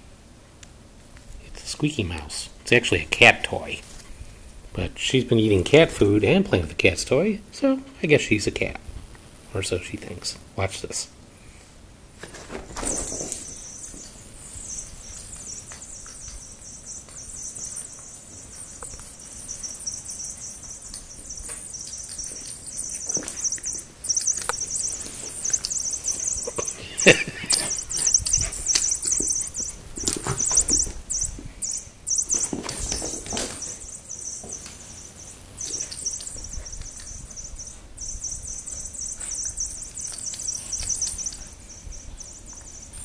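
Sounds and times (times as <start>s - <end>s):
knocks and scrabbling on rug: 12.2s - 20.0s, 21.0s - 26.5s, 27.5s - 31.7s, 32.3s - 37.1s
squeaky toy squeaking: 12.8s - 43.0s.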